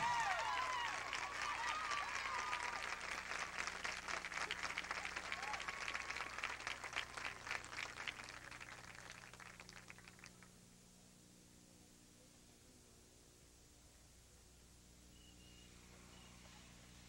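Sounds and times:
crowd cheers: 0:00.0 - 0:10.1
crowd applauding: 0:00.0 - 0:10.5
whistle: 0:15.1 - 0:16.6.

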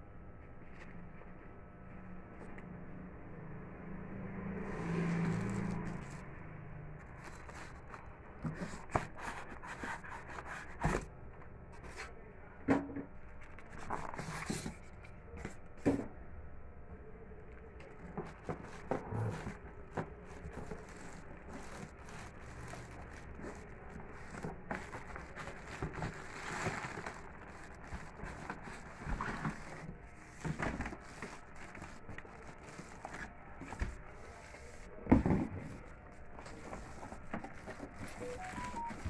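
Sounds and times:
cardboard scraping: 0:04.6 - 0:06.3, 0:07.0 - 0:11.1, 0:13.5 - 0:16.0, 0:17.8 - 0:39.0
plastic wrapping crinkling: 0:20.2 - 0:33.6.

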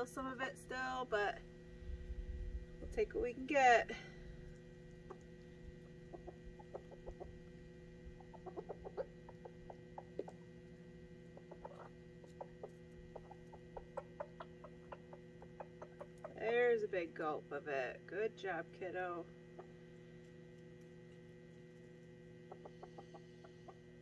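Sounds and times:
faint steady hum: 0:00.0 - 0:24.0
chicken clucking: 0:06.0 - 0:07.5, 0:08.1 - 0:10.5, 0:11.2 - 0:16.5, 0:19.5 - 0:19.8, 0:22.4 - 0:23.9.

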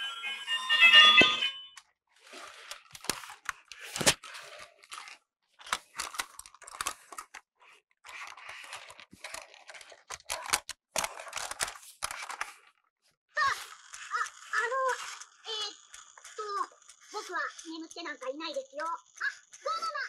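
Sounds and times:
plastic toy scraping and rustling: 0:02.1 - 0:20.0
sharp plastic clicks and knocks: 0:04.9 - 0:12.7.

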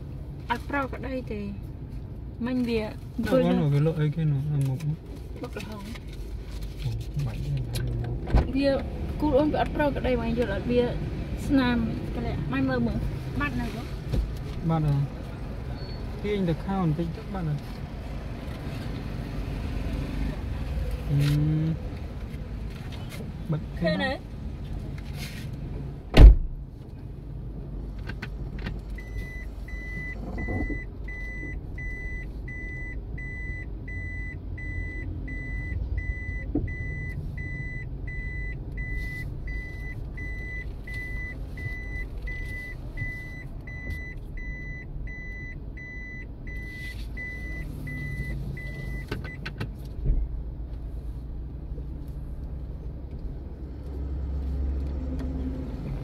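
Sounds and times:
low rumble of car and street: 0:00.0 - 0:56.0
thump: 0:26.1 - 0:26.6
car reverse warning beeps: 0:28.9 - 0:49.4.

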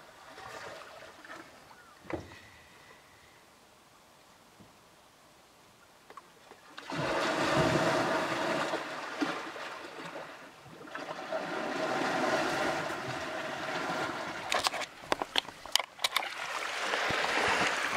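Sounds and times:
boat rushing and splashing: 0:06.8 - 0:17.9.

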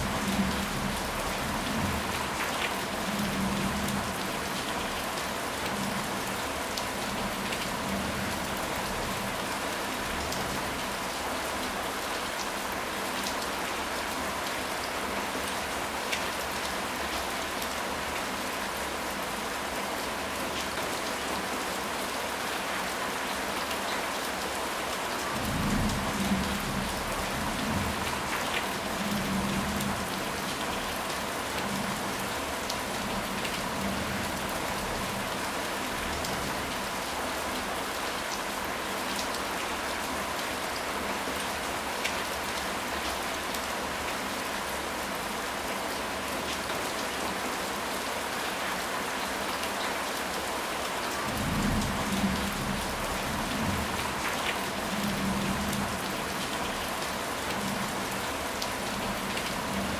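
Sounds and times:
rain drops: 0:00.0 - 0:59.9
steady rain falling: 0:00.0 - 0:59.9.

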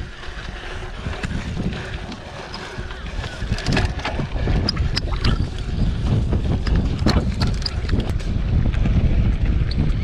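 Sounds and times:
bike rattling over bumps: 0:00.0 - 0:10.0
bike tyres on dirt: 0:00.0 - 0:10.0
wind buffeting microphone: 0:00.0 - 0:10.0.

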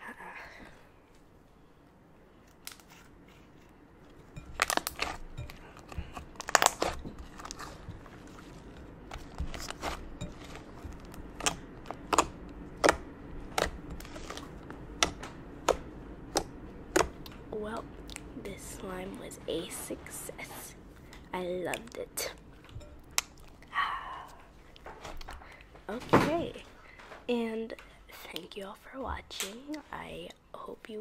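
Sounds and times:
slime crackling and popping: 0:04.4 - 0:17.3.

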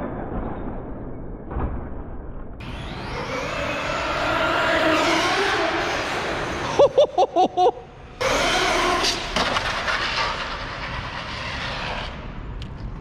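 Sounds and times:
electric motor whine: 0:02.6 - 0:06.5.

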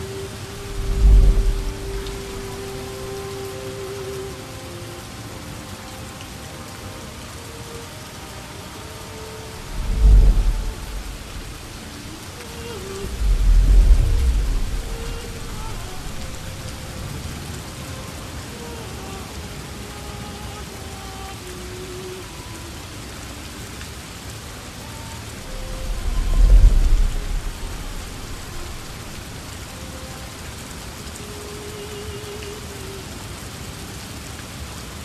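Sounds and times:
faint drawn-out tones: 0:00.0 - 0:22.8, 0:24.6 - 0:33.7
steady rain: 0:00.0 - 0:35.0
low thunder rumbles: 0:00.6 - 0:02.8, 0:09.6 - 0:12.3, 0:13.0 - 0:16.7, 0:25.4 - 0:29.4.

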